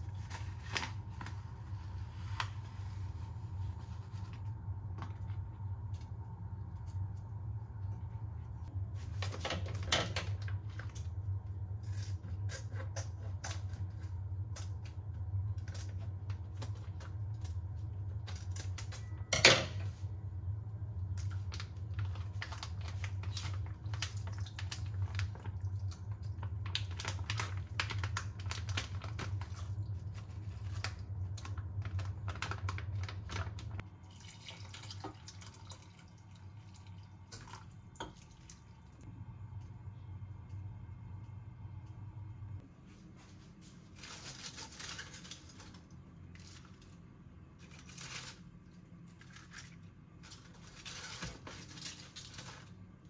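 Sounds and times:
steady low hum: 0:00.0 - 0:53.0
plastic pouch crinkling: 0:21.3 - 0:33.8
water poured into pot: 0:33.9 - 0:38.8.

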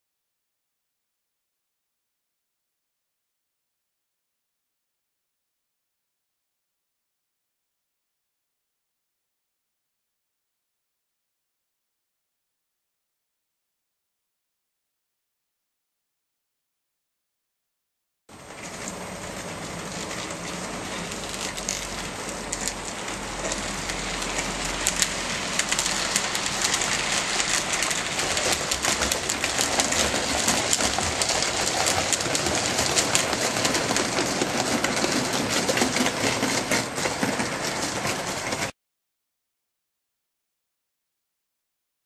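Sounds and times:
model train wheels rattling on rail: 0:18.3 - 0:38.7
clicks at rail joints: 0:18.5 - 0:38.7.

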